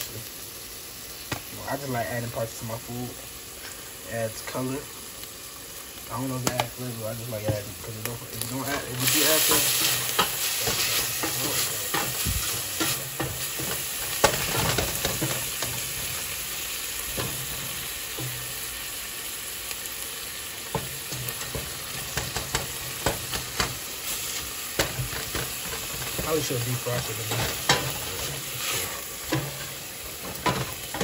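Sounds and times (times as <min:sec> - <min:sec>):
meat sizzling in a pot: 0:00.0 - 0:31.0
wooden spoon scraping a pot: 0:24.1 - 0:31.0.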